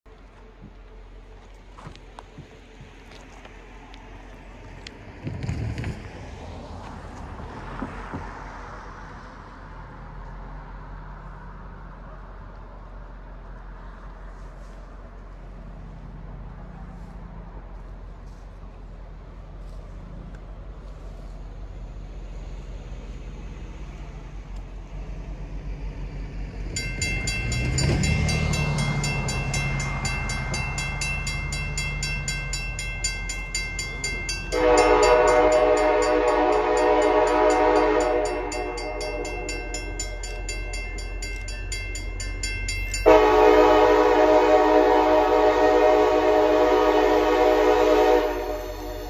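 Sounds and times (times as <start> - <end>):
diesel locomotive engine rumble: 0.0 - 49.0
high-pitched ringing: 26.8 - 43.6
train air horn blasts: 34.4 - 40.9, 43.0 - 49.0.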